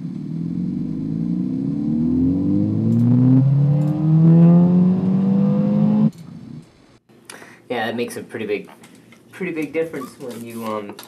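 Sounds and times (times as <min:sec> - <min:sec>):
recorded car engine accelerating: 0:00.0 - 0:06.6.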